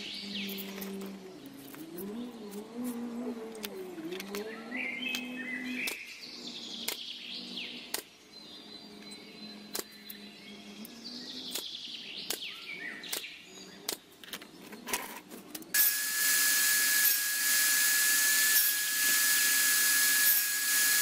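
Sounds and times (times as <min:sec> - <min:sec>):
birds chirping: 0:00.0 - 0:15.7.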